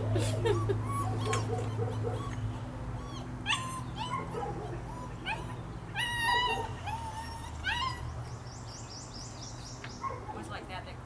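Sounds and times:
puppy whining and yelping: 0.0s - 8.3s.

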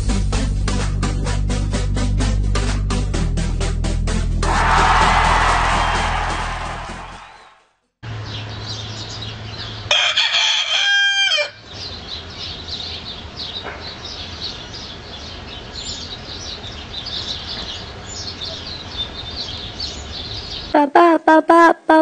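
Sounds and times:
rooster crowing: 4.4s - 7.5s, 9.9s - 11.6s
small birds chirping: 8.2s - 9.9s, 11.6s - 20.8s.

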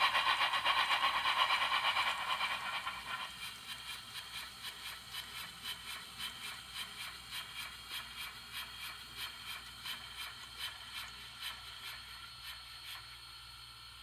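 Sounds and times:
model locomotive steam chuffs: 0.0s - 14.0s.

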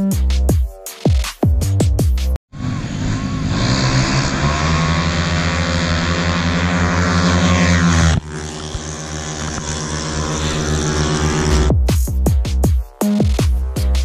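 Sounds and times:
distant engine drone: 2.5s - 11.8s
scooter engines high-revving: 2.5s - 12.0s.

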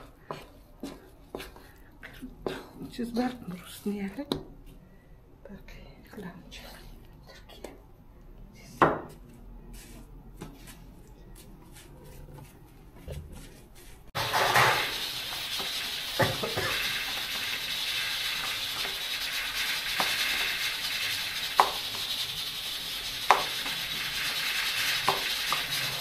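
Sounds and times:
steady hiss: 14.1s - 26.0s.

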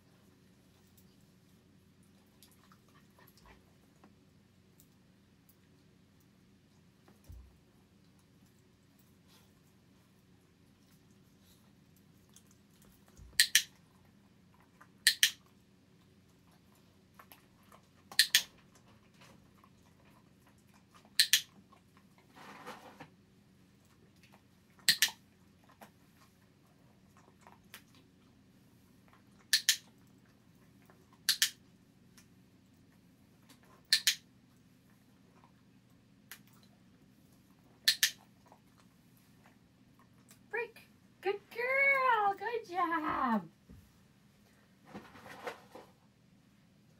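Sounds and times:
dog-training clicker clicking: 13.4s - 13.7s, 15.0s - 15.4s, 18.2s - 18.5s, 21.2s - 21.5s, 24.9s - 25.2s, 29.5s - 29.8s, 31.3s - 31.6s, 33.9s - 34.2s, 37.9s - 38.2s.

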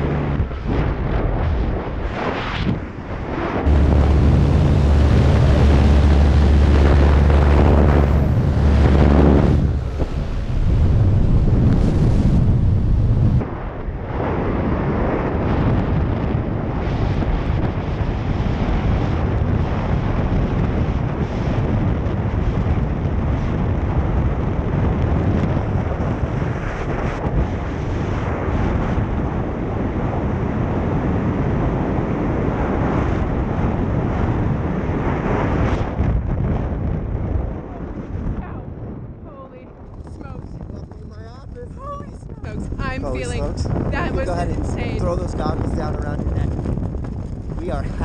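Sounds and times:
heavy wind buffeting microphone: 0.0s - 48.0s.

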